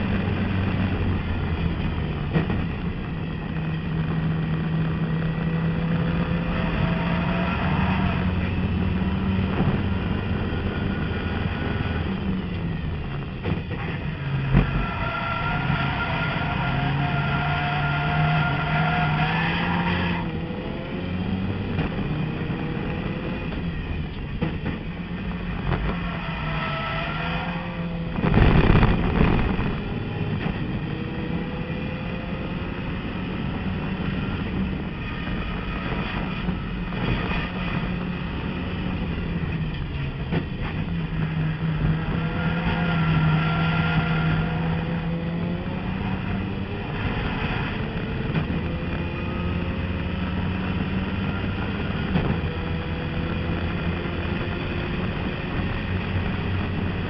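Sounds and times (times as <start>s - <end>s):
loud rumbling burst: 28.1s - 30.8s.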